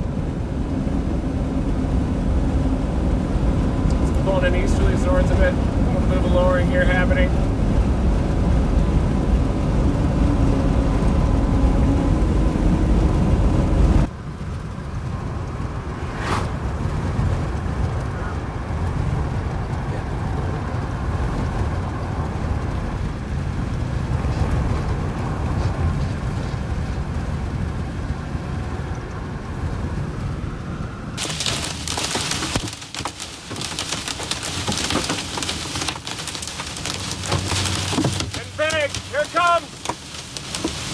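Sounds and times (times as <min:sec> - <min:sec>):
car road and engine drone: 0:00.0 - 0:40.9
low rumble: 0:09.0 - 0:18.5.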